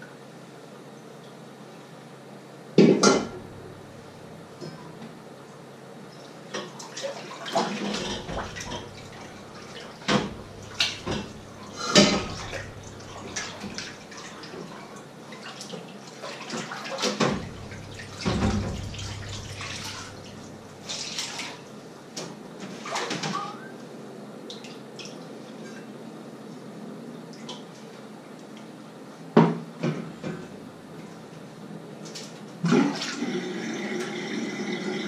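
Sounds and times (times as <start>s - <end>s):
pots and utensils clattering: 2.9s - 4.9s, 7.6s - 14.6s, 16.5s - 21.2s
water splashing in sink: 3.0s - 4.7s, 6.5s - 21.7s, 32.2s - 35.0s.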